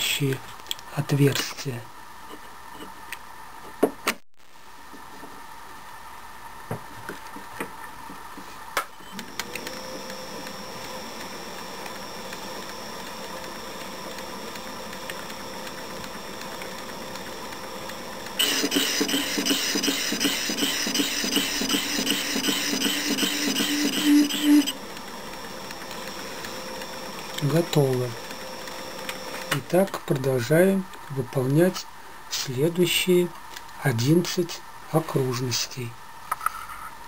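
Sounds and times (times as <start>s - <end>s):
lathe motor humming: 18.2s - 29.5s.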